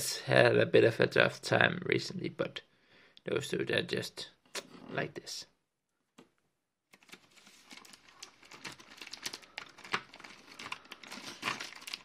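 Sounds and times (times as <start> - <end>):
plastic packaging crinkling: 6.9 - 12.0.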